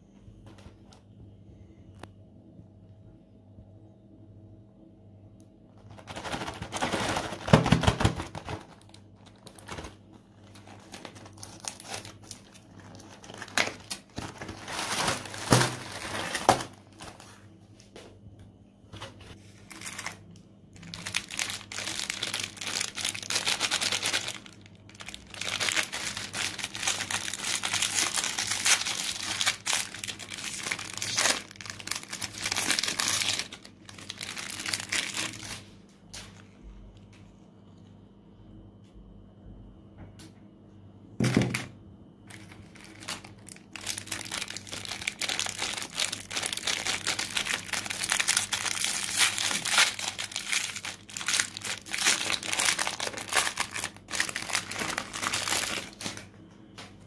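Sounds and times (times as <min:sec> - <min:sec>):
foil wrappers crinkling: 0:05.8 - 0:17.4, 0:19.6 - 0:36.4, 0:42.3 - 0:56.3.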